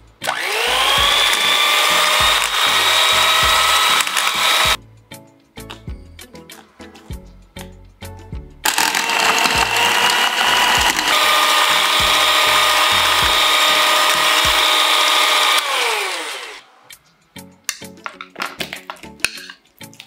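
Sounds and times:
electric hand mixer whining: 0:00.3 - 0:04.8, 0:08.6 - 0:16.7.

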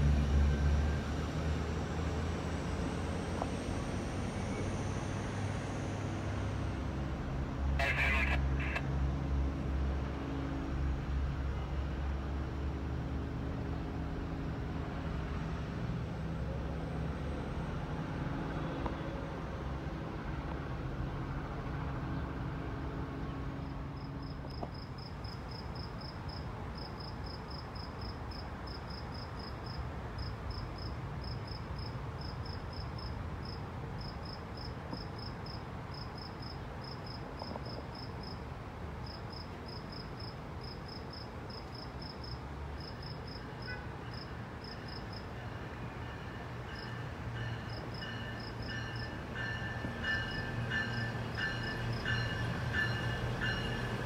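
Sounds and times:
train tones: 0:07.7 - 0:09.0, 0:43.2 - 0:54.0.

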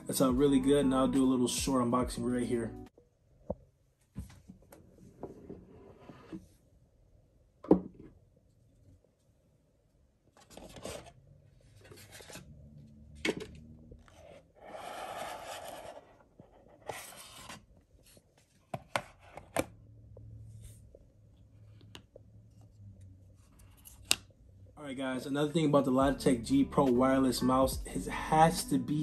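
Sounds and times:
cardboard sliding and scraping: 0:14.0 - 0:19.4.

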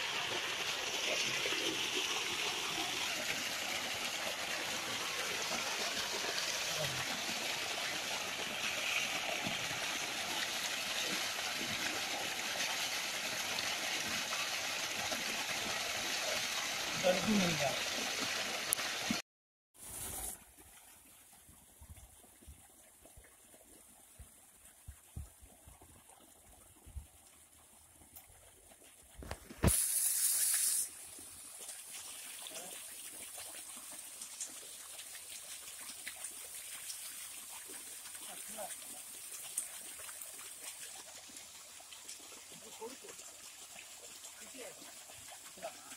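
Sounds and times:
water gushing and splashing: 0:00.0 - 0:19.2, 0:27.5 - 0:45.9
loud hissing burst: 0:29.6 - 0:30.9.

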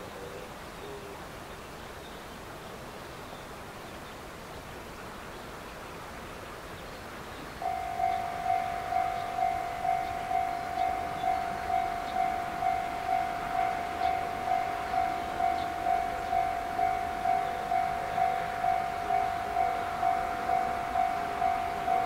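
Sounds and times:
level crossing warning bell: 0:07.6 - 0:22.0.

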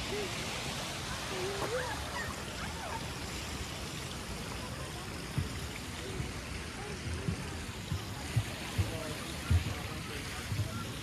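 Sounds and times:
faint distant voices: 0:00.0 - 0:11.0
outdoor hiss: 0:00.0 - 0:11.0
soft low thumps: 0:07.0 - 0:10.9.

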